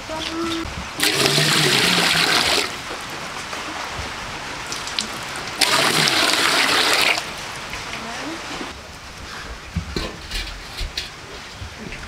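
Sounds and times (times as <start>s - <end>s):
water pouring into metal pot: 1.0s - 2.7s, 5.6s - 7.3s.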